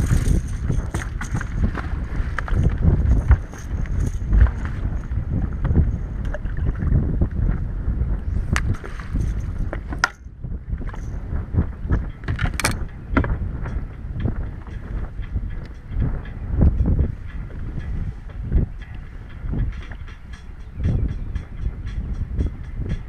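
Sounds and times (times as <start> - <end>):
wind buffeting microphone: 0.0 - 23.0
water slapping boat hull: 0.8 - 10.2.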